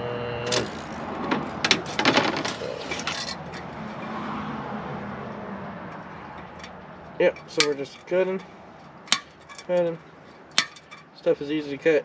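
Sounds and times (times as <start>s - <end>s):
plastic grid rattling: 1.7s - 3.3s.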